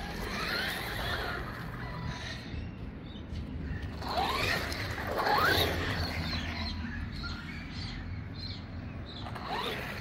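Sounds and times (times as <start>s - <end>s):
electric motor whining: 0.0s - 2.5s, 3.8s - 6.8s, 9.2s - 10.0s.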